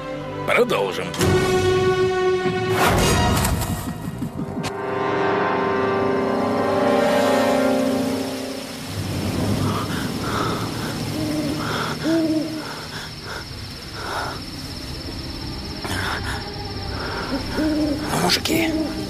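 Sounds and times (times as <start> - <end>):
owl hooting: 15.8 - 19.0.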